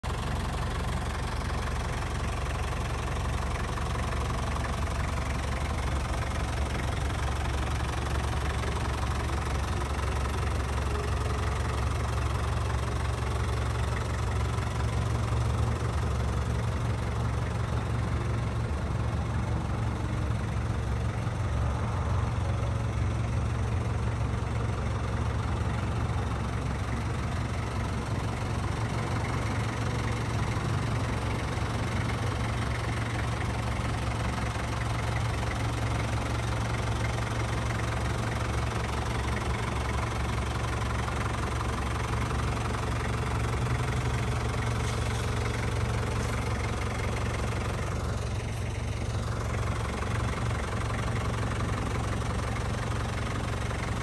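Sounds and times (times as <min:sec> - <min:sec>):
diesel van engine idling: 0:00.0 - 0:54.0.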